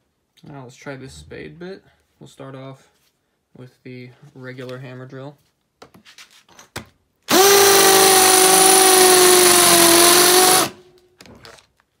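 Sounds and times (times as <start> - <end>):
hammer drill drilling into concrete: 7.3 - 10.8.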